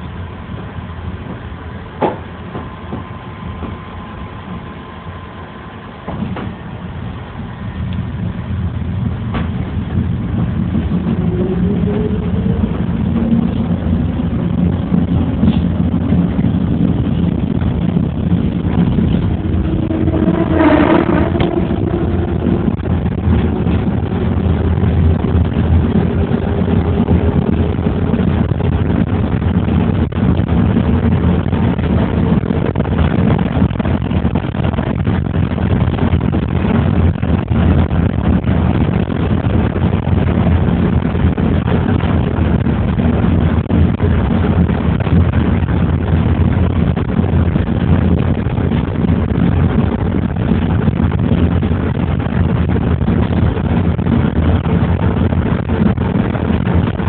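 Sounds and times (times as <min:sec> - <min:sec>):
car engine and tyre rumble: 0:00.0 - 0:57.0
faint rising tone: 0:18.4 - 0:28.1.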